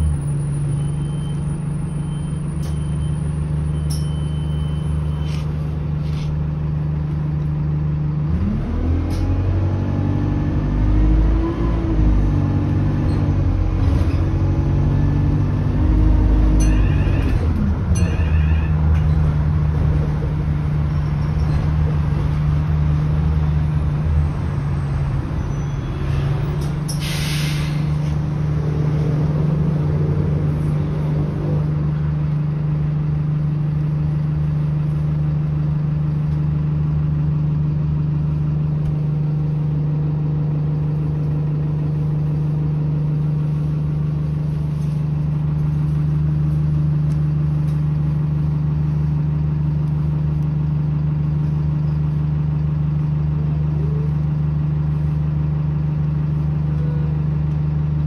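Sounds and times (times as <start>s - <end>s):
bus engine drone: 0.0s - 58.0s
short burst of hiss: 27.0s - 27.9s.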